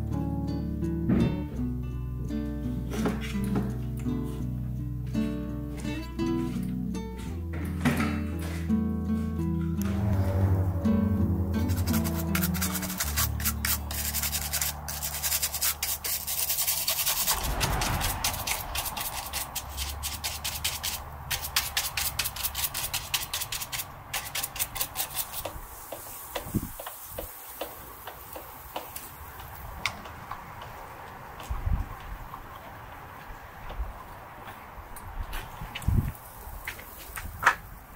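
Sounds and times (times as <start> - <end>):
bristle brush scrubbing plastic: 11.7 - 26.3.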